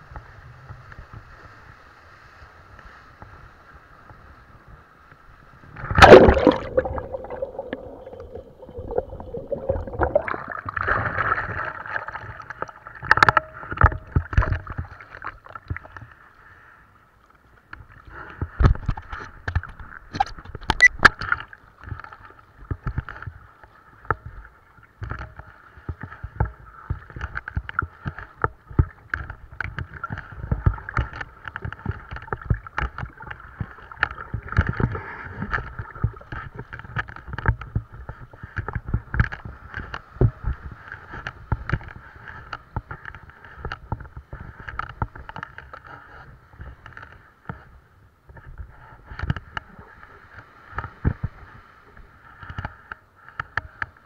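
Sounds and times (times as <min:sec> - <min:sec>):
sea water splashing: 0:05.5 - 0:16.8
water crashing: 0:05.7 - 0:16.0.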